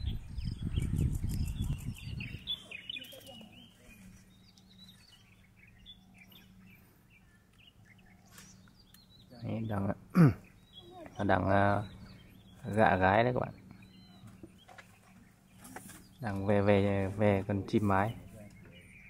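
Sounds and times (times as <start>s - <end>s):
faint small bird chirps: 0.0s - 12.9s.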